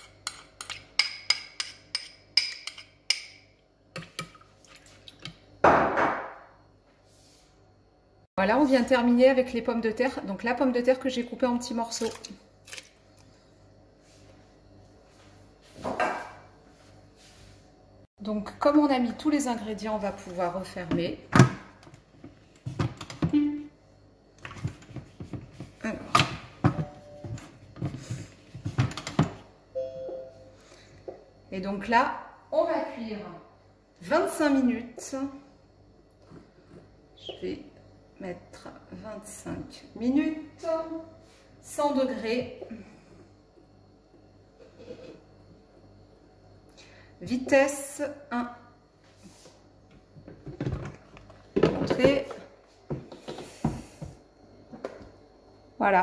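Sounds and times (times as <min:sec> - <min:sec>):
short electronic tones: 0:29.8 - 0:30.6.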